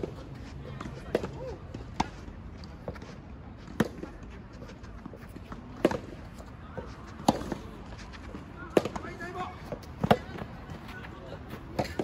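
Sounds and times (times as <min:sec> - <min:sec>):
racket striking tennis ball: 0:05.8 - 0:06.2, 0:07.2 - 0:07.6.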